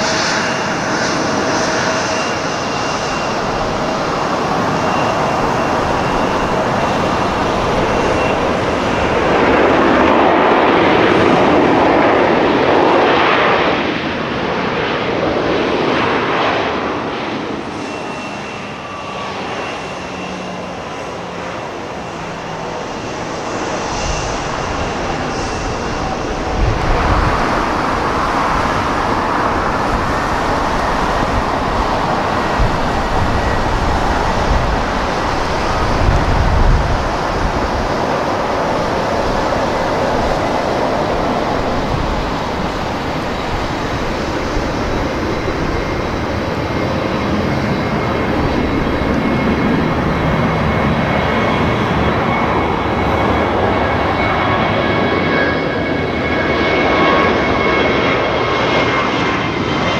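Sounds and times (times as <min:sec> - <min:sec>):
jet engines roaring and whining: 0:00.0 - 0:59.9.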